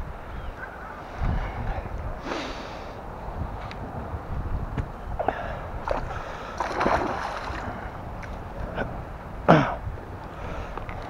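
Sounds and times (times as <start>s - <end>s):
fish thrashing and splashing water: 5.9s - 7.8s.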